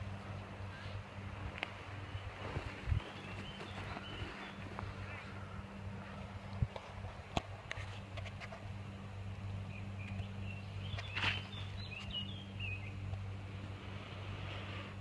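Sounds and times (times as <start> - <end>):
bird chirping: 2.1 - 6.3, 9.6 - 13.1.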